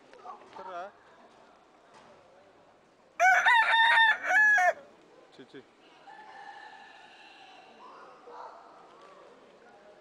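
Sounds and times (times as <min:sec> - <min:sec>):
rooster crowing: 0:03.2 - 0:04.8.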